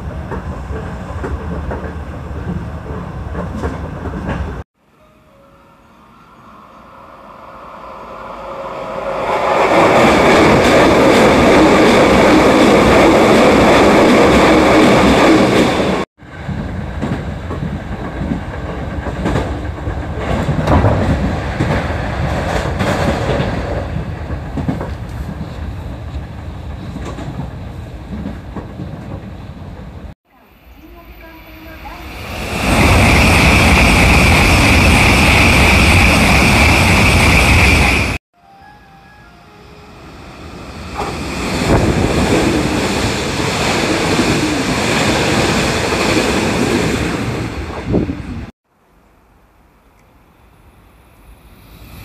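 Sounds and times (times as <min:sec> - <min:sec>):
electric train running rumble: 0:00.0 - 0:04.6, 0:05.3 - 0:30.2, 0:30.8 - 0:48.5, 0:50.5 - 0:52.0
wheels clacking over rail joints: 0:00.2 - 0:04.6, 0:16.4 - 0:30.1.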